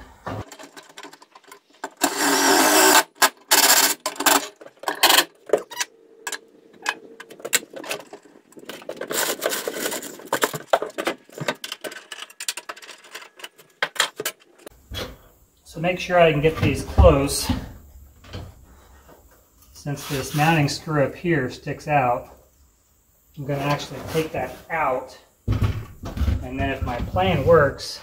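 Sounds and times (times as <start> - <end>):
ratchet clicks: 1.9 - 5.3.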